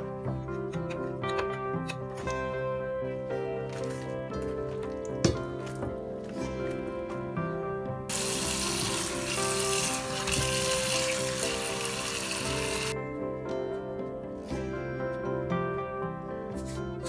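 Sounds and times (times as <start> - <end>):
light background music: 0.0 - 17.0
tap water running into colander: 8.1 - 13.0.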